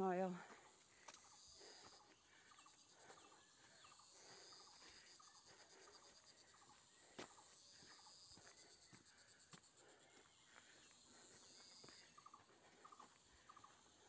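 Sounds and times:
insect trill: 0:00.0 - 0:14.0.

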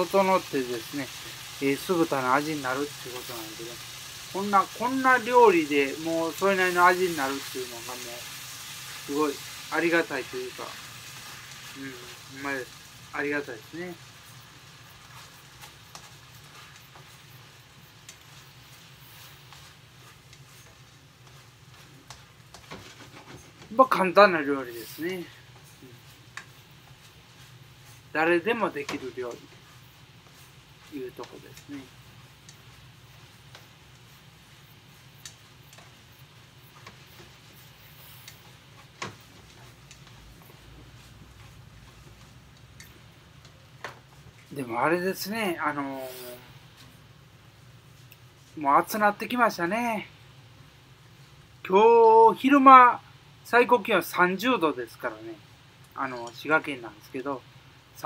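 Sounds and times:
faint steady hiss: 0:00.0 - 0:58.0
pork sizzling in a frying pan: 0:00.0 - 0:58.0
turner scraping a pan: 0:14.2 - 0:23.7.

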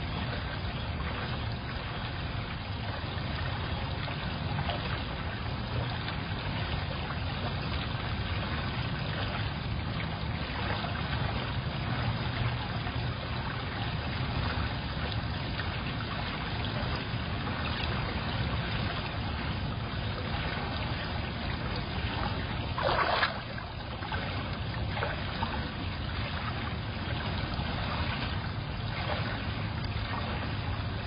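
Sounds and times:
water trickling: 0:00.0 - 0:31.0.

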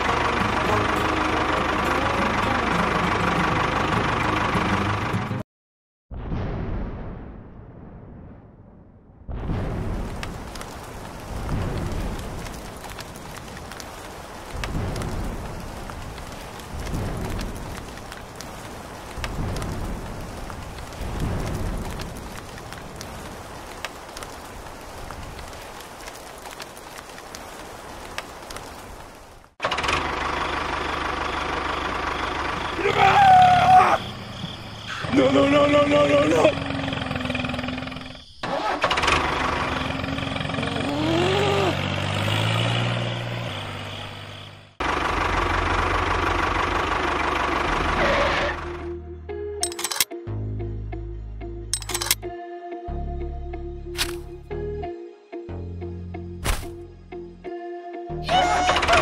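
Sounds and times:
rain pattering: 0:00.0 - 0:05.2, 0:09.6 - 0:38.2, 0:38.9 - 0:48.2
low pulsing engine idle: 0:00.0 - 0:05.4, 0:29.8 - 0:34.5, 0:44.1 - 0:49.0
tractor engine running: 0:00.0 - 0:05.4, 0:29.6 - 0:49.0, 0:51.8 - 0:52.2
low rumbles: 0:06.1 - 0:38.3.

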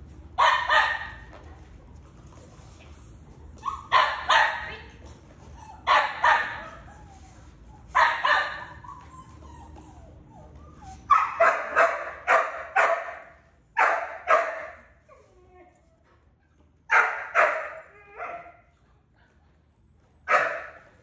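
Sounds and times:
puppy barking: 0:00.4 - 0:01.2, 0:03.6 - 0:04.9, 0:05.8 - 0:06.8, 0:07.9 - 0:09.0, 0:11.1 - 0:14.9, 0:16.9 - 0:18.6, 0:20.3 - 0:21.0.

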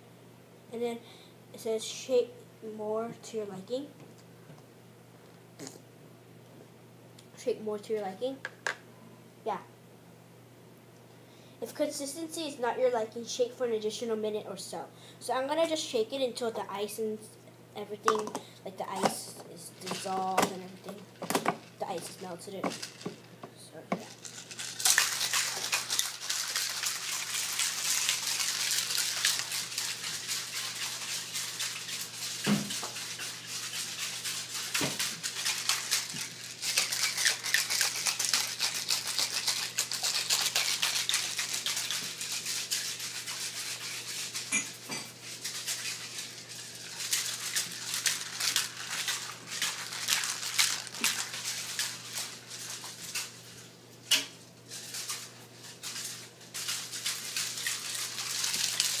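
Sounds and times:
ice rattling and sloshing in ball: 0:54.8 - 0:59.0.

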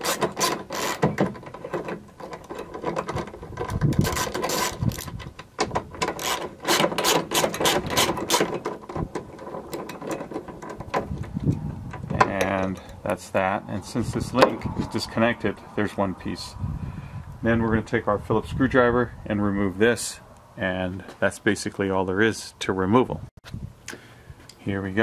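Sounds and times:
ratchet wrench clicking: 0:00.0 - 0:01.0, 0:04.0 - 0:05.2, 0:06.1 - 0:08.5.

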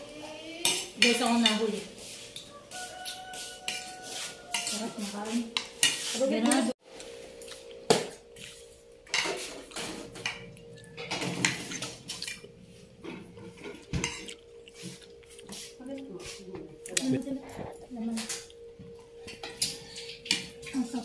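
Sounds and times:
cutlery clinking on plates: 0:02.3 - 0:06.8, 0:09.1 - 0:12.4, 0:13.0 - 0:15.0, 0:19.2 - 0:20.9.

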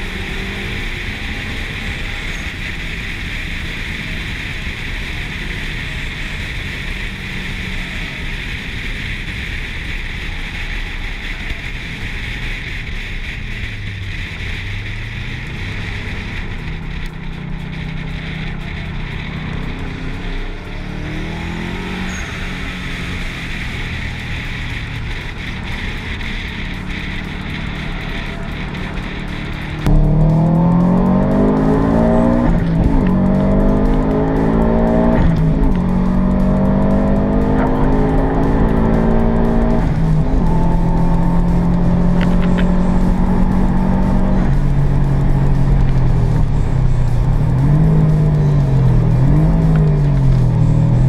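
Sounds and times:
low car engine note: 0:13.5 - 0:51.0.

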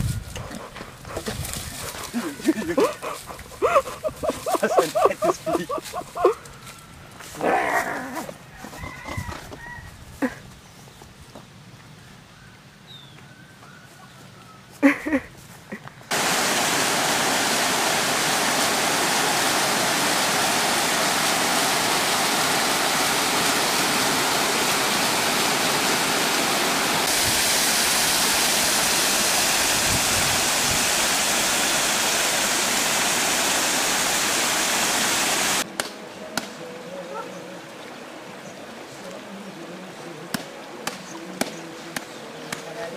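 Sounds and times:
waterfall rushing onto stones: 0:03.7 - 0:06.3, 0:16.1 - 0:35.7.

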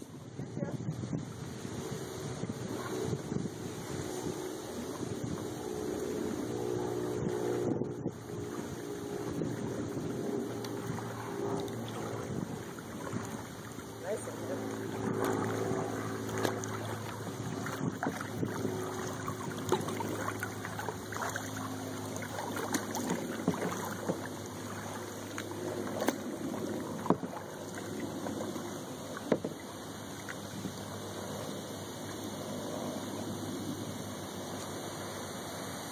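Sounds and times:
paddle blades dipping and dripping: 0:03.8 - 0:35.2.

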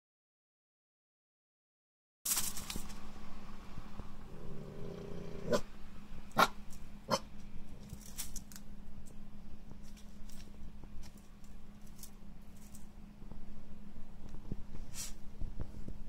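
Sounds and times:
puppy growling: 0:04.2 - 0:05.7, 0:06.4 - 0:08.1.

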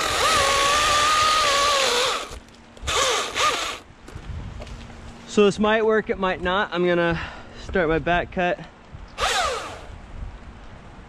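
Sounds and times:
chainsaw motor whine: 0:00.0 - 0:03.8, 0:09.2 - 0:10.0.

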